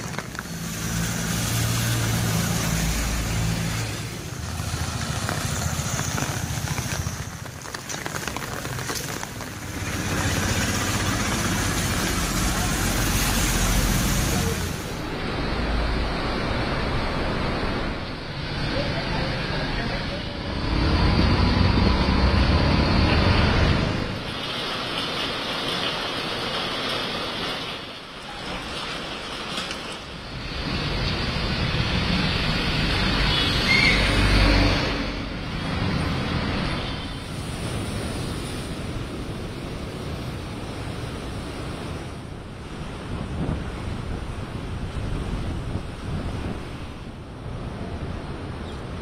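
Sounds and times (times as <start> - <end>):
tyres hissing through water: 0.0 - 15.3, 35.4 - 42.0
vehicle passing close: 0.0 - 24.3
tyres hissing on wet road: 0.0 - 47.8
bus engine rumble: 0.0 - 48.6
rain and wind rushing: 0.0 - 49.0.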